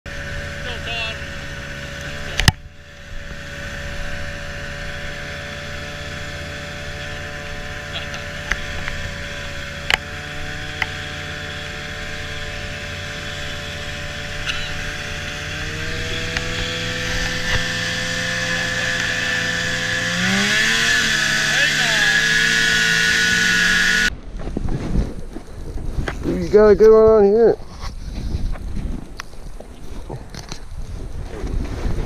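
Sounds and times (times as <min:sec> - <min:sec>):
snowmobile engine running: 0:00.1 - 0:24.1.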